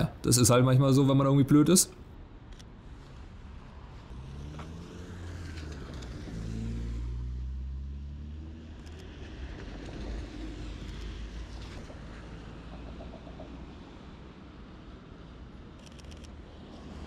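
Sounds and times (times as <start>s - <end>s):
car engine passing: 3.6s - 13.6s.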